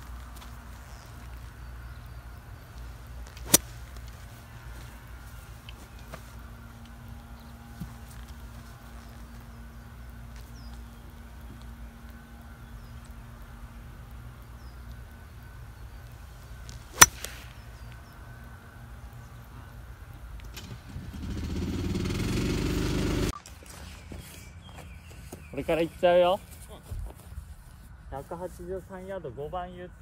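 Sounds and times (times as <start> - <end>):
golf club striking ball: 3.4 - 3.7, 16.9 - 17.6.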